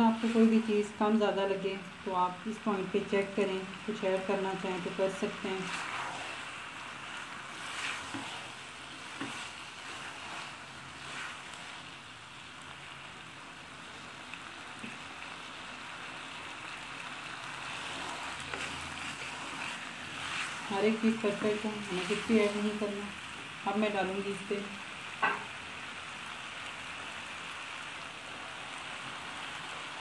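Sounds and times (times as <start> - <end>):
food sizzling in a pan: 0.0 - 30.0
spatula stirring food: 4.0 - 15.4, 16.0 - 23.4.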